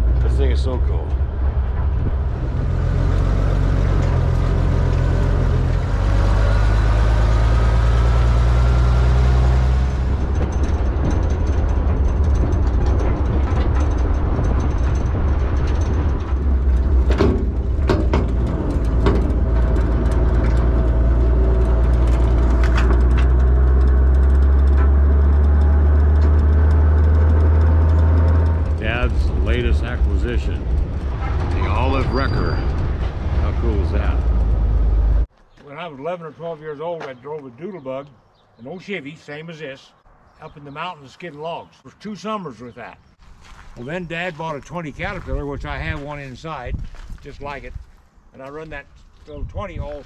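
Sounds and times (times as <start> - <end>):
truck engine rumbling: 0.0 - 35.3
sharp knocks: 9.6 - 31.6.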